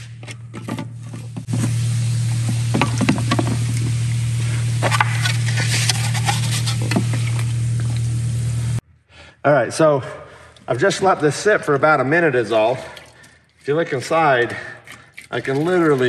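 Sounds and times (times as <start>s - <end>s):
hammer and brush scraping: 0.0s - 8.0s
low hum: 0.0s - 8.9s
foam fizzing in acetone: 1.0s - 8.8s.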